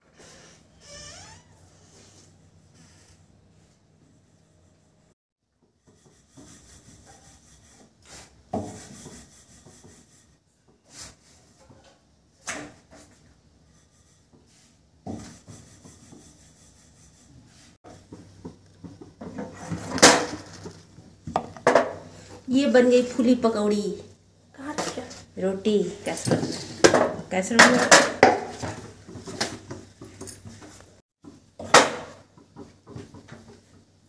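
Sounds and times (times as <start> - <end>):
rolling pin rolling dough on board: 12.8 - 21.9.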